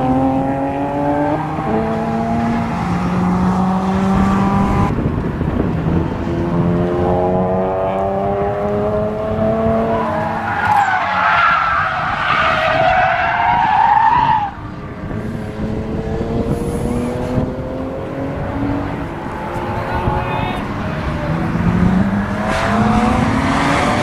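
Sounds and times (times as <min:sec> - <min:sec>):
car engine accelerating: 0:00.0 - 0:11.0, 0:11.8 - 0:24.0
tyre squeal: 0:10.0 - 0:14.6.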